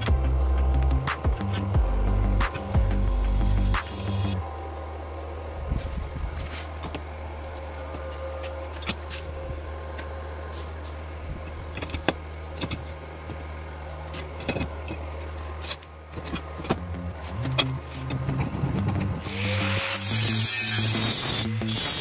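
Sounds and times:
steady low hum: 0:00.0 - 0:21.8.

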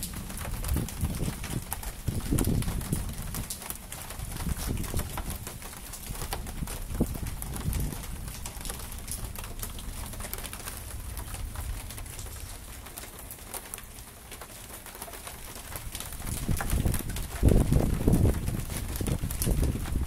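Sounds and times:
thunder rumbling: 0:00.0 - 0:14.1, 0:15.5 - 0:20.0.

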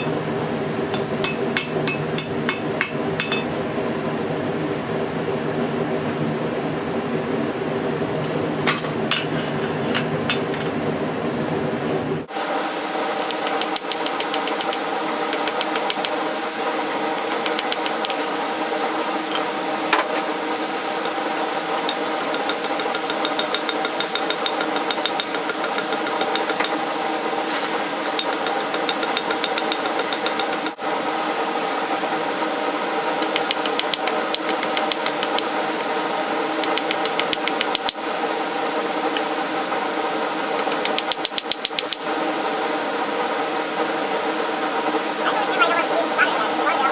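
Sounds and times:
steady machine hum: 0:00.0 - 0:40.9, 0:42.1 - 0:46.9
hammer striking steel on anvil: 0:00.9 - 0:03.5.

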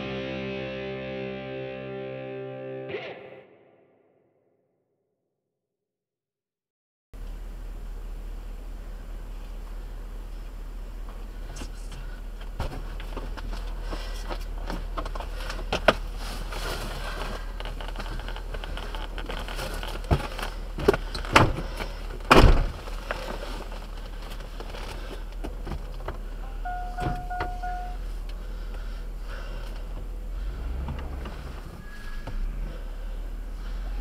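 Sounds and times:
truck idling low hum: 0:07.2 - 0:34.0
short beep: 0:26.4 - 0:28.0.

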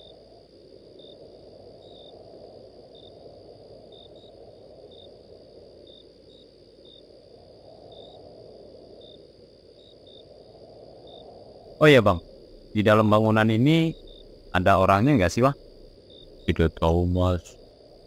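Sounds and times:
crickets chirping: 0:00.0 - 0:18.0
steady low rumble: 0:10.5 - 0:18.0.

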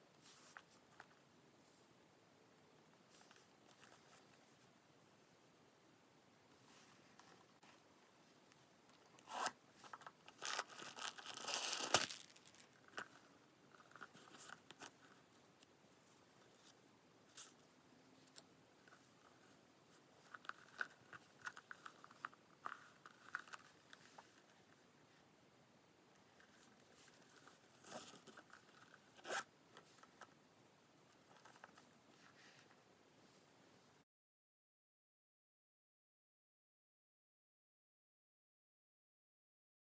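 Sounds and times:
metal zipper rasp and click: 0:09.2 - 0:09.6, 0:29.1 - 0:29.5
bag and tag rustling: 0:09.2 - 0:13.2.

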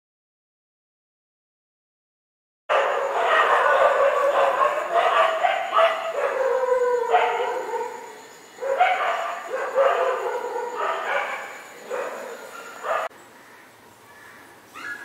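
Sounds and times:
dog yelping and howling: 0:02.7 - 0:13.1, 0:14.8 - 0:15.0.

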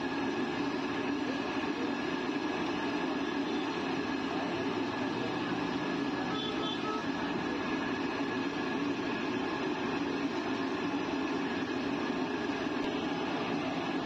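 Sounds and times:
deep-frying in hot oil sizzling: 0:00.0 - 0:14.0.

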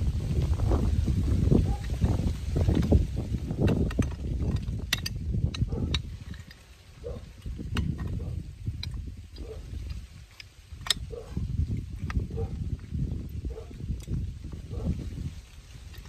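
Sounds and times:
wrenches clinking on metal fittings: 0:02.6 - 0:14.9.

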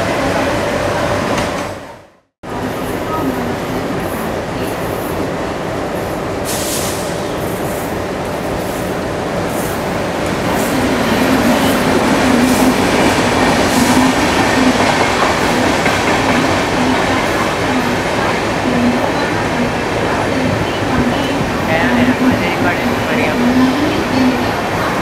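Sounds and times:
train wheels clattering over rails: 0:09.5 - 0:22.4.

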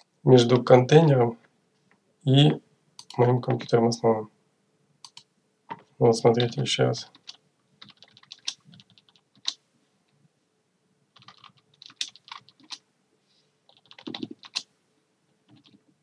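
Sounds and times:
computer keyboard typing: 0:05.0 - 0:05.2, 0:06.4 - 0:09.6, 0:11.2 - 0:12.8, 0:13.7 - 0:14.7, 0:15.5 - 0:15.8.

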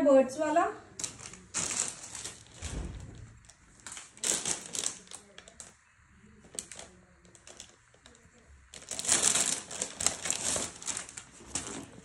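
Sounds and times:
cloth and packaging rustling: 0:00.9 - 0:12.0
soft low bump: 0:02.6 - 0:03.5.

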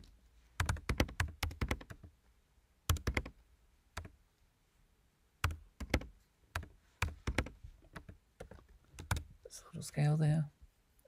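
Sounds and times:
keyboard typing: 0:00.6 - 0:02.1, 0:02.9 - 0:03.4, 0:05.4 - 0:09.3.

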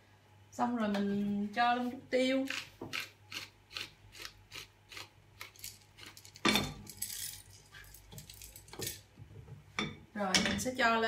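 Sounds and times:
pepper mill grinding: 0:02.5 - 0:09.0.

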